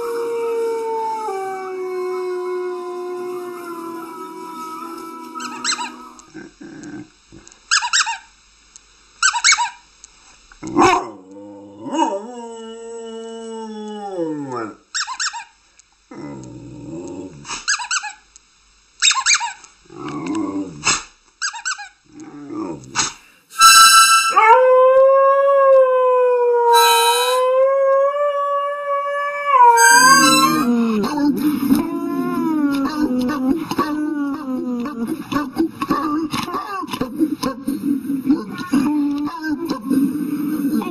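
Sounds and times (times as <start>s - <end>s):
dogs howling: 0.0s - 6.3s, 24.3s - 34.7s
wolves howling on television: 0.0s - 6.3s, 10.6s - 14.8s, 24.3s - 35.2s
dog high squeaky cries: 19.0s - 19.6s, 29.8s - 30.7s.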